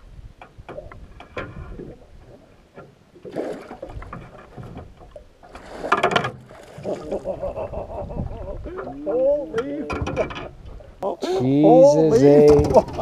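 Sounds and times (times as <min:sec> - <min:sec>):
water splashing: 0:00.6 - 0:13.0.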